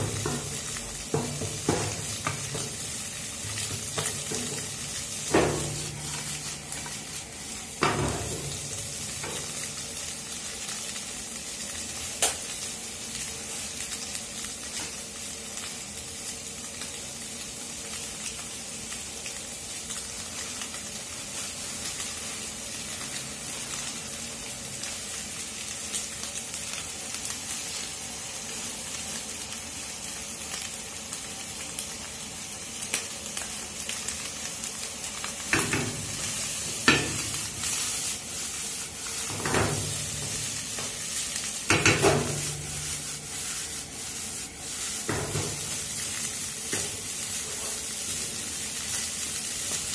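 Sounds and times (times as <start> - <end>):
spatula knocking on pan: 0.0 - 2.9, 3.5 - 6.0, 7.8 - 8.6, 36.8 - 37.3, 41.7 - 42.5
vegetables and egg sizzling in oil: 0.0 - 49.9.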